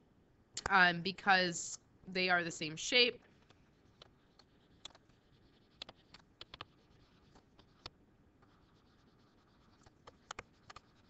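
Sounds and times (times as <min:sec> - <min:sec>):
stylus tapping on tablet screen: 0:03.9 - 0:11.0.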